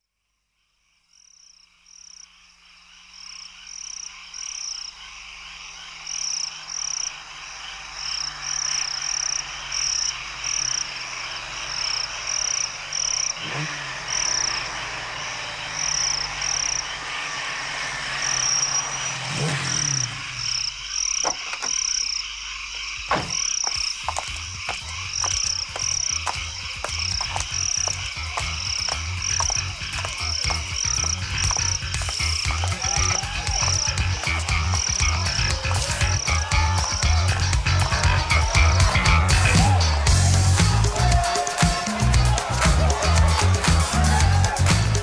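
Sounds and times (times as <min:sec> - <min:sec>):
chorus of high chirps: 0:00.6 - 0:45.0
low hum: 0:05.4 - 0:21.2.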